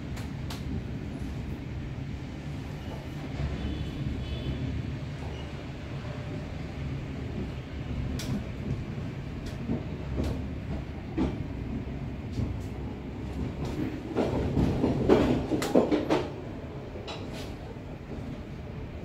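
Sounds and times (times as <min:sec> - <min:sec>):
train wheels rumbling: 0:00.0 - 0:19.0
train wheels clacking on rail joints: 0:07.3 - 0:16.4.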